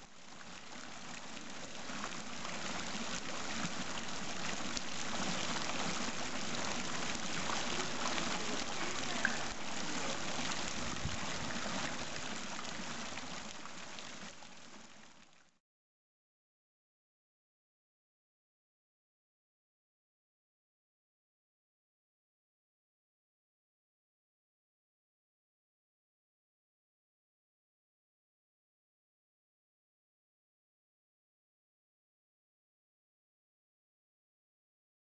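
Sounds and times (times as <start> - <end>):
fountain water splashing: 0.0 - 15.5.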